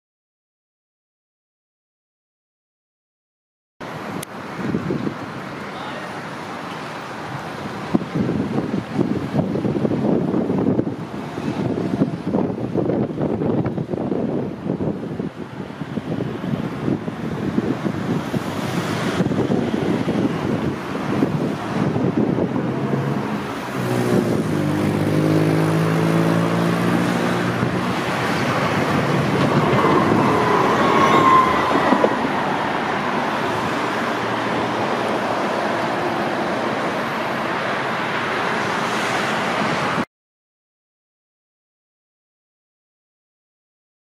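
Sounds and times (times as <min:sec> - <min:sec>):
road noise: 0:03.8 - 0:40.1
vehicle motor hum: 0:17.2 - 0:40.0
high squeal: 0:28.3 - 0:33.6.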